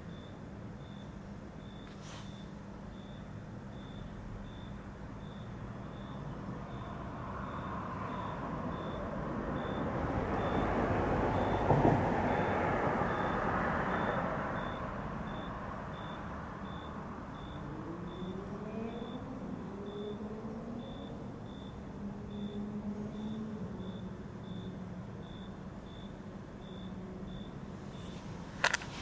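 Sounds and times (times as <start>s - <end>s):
vehicle passing on street: 5.2s - 29.0s
engine accelerating: 17.5s - 24.0s.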